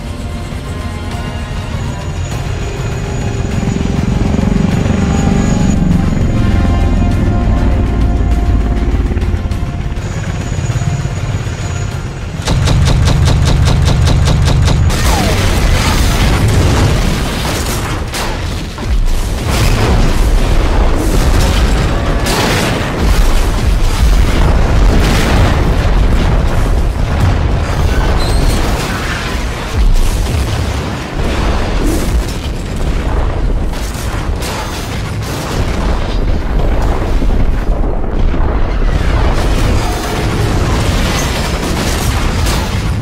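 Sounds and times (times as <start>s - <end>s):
background music: 0.0s - 15.6s.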